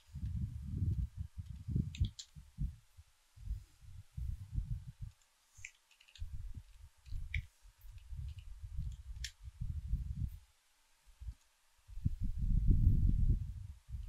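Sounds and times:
dull low thumps: 0:00.0 - 0:02.8, 0:03.4 - 0:05.2, 0:06.2 - 0:10.4.

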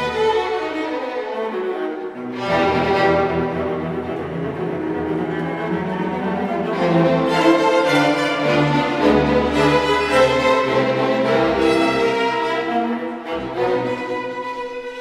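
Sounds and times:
string orchestra playing: 0:00.0 - 0:15.0.

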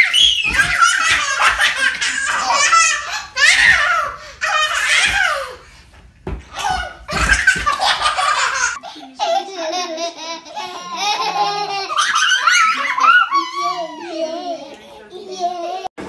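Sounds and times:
girls giggling: 0:00.0 - 0:04.5, 0:06.5 - 0:15.9
children laughing: 0:00.0 - 0:05.6, 0:06.5 - 0:16.0
dull thumps: 0:00.2 - 0:02.0, 0:03.6 - 0:08.5.

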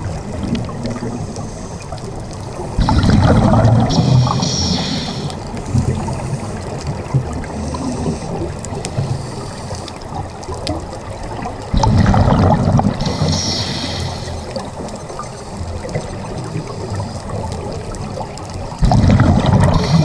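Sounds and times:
exhaled bubbles gushing: 0:00.0 - 0:01.2, 0:02.5 - 0:08.9, 0:10.0 - 0:20.0
steady underwater wash: 0:00.0 - 0:20.0
regulator hissing inhale: 0:01.2 - 0:02.1, 0:02.8 - 0:06.8, 0:07.4 - 0:10.1, 0:13.0 - 0:15.9, 0:19.6 - 0:20.0.

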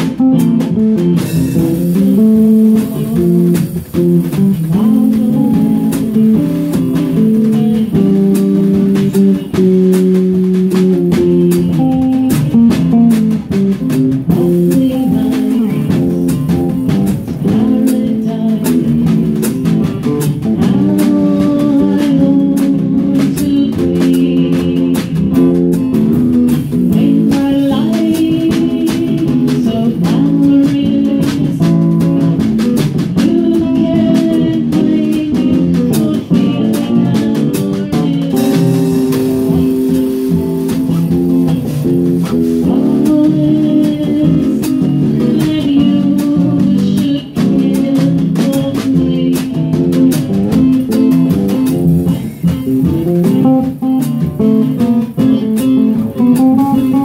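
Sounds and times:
acoustic guitar: 0:00.0 - 0:57.0
drums with cymbal strokes: 0:00.0 - 0:57.0
electric bass guitar: 0:00.0 - 0:57.0.

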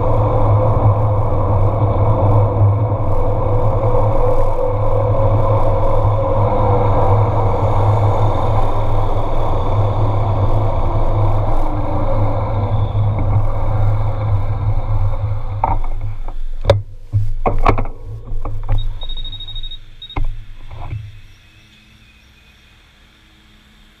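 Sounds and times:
wind rumbling on microphone: 0:00.0 - 0:21.6
quiet road ambience: 0:00.0 - 0:24.0
bicycle clicks and knocks: 0:15.0 - 0:21.1
high steady tone: 0:18.0 - 0:24.0.

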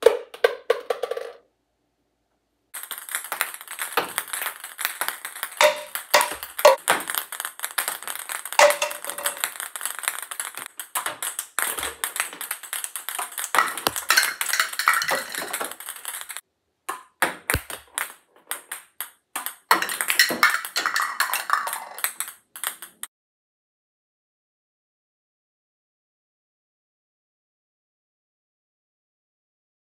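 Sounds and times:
plastic cups knocked over: 0:00.0 - 0:01.4, 0:02.8 - 0:23.1
ping pong ball bouncing: 0:02.8 - 0:23.1.

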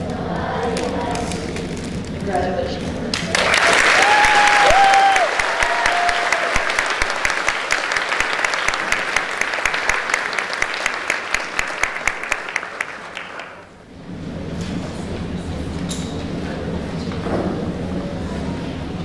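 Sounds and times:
audience clapping: 0:03.1 - 0:13.8.

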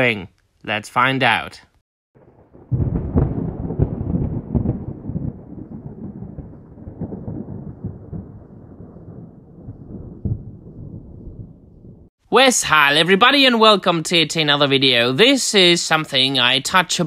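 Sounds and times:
deep rolling rumble with crackles: 0:02.2 - 0:12.1.

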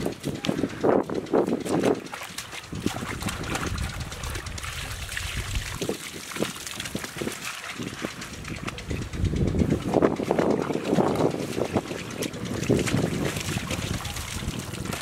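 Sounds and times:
bare feet squelching in mud: 0:01.4 - 0:08.6.

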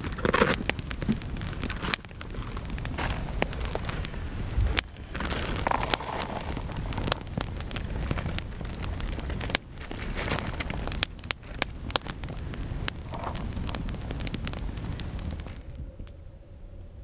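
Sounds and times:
campfire crackling and popping: 0:00.0 - 0:16.2
wind rumble on microphone: 0:00.0 - 0:17.0.

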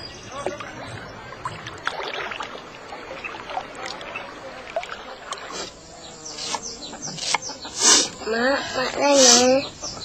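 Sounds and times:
water sloshing and splashing: 0:00.4 - 0:05.8.

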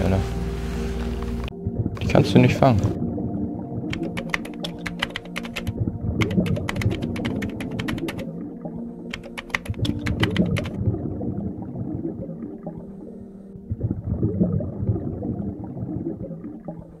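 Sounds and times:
low background music: 0:00.0 - 0:17.0
keyboard key clicks: 0:03.9 - 0:08.2, 0:09.1 - 0:10.8.

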